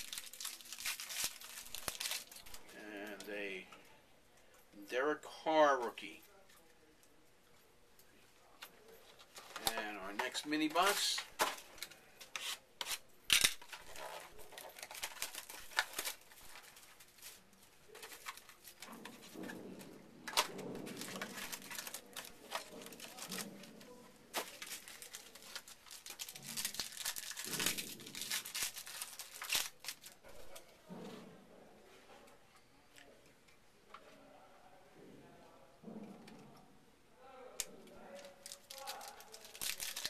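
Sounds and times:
card pack wrappers tearing: 0.0s - 3.3s, 9.4s - 19.2s, 20.3s - 30.2s, 38.1s - 40.0s.

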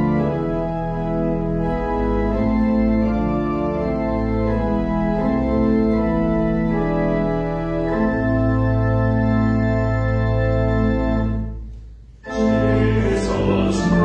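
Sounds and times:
church organ chords: 0.0s - 14.0s
organ pedal bass: 0.0s - 14.0s.

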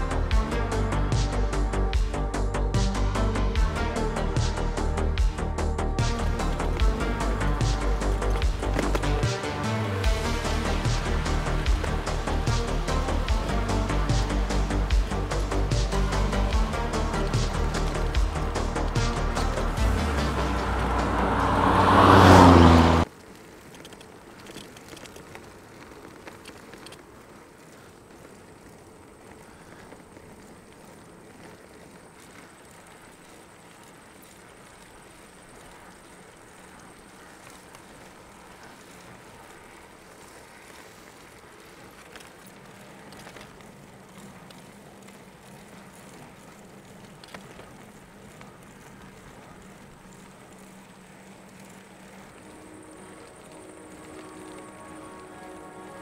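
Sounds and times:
bicycle tyres rolling on pavement: 0.0s - 56.0s
light clicks: 23.1s - 40.0s.

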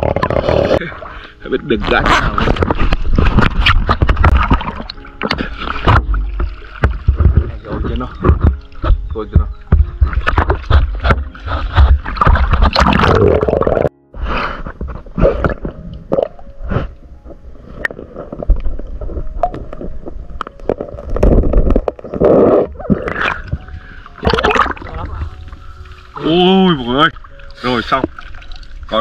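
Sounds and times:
underwater gurgling and rumbling: 0.0s - 1.2s, 1.9s - 9.1s, 9.9s - 14.0s, 14.7s - 26.2s
water sloshing and splashing: 0.0s - 13.4s, 17.6s - 29.0s.

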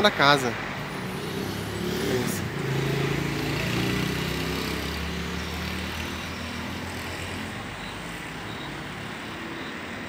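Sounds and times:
street traffic noise: 0.0s - 10.0s
vehicle engine hum: 0.0s - 10.0s.

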